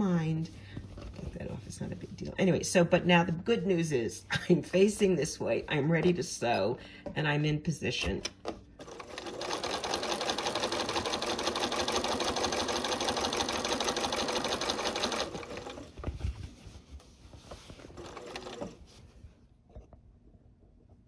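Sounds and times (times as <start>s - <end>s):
sewing machine stitching: 8.8s - 16.0s, 17.8s - 18.9s.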